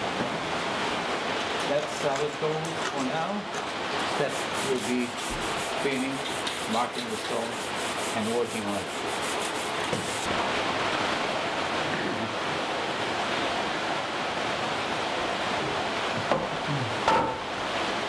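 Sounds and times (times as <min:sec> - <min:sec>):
steady rushing noise: 0:04.0 - 0:11.6
hand tool scraping millstone: 0:04.1 - 0:10.3.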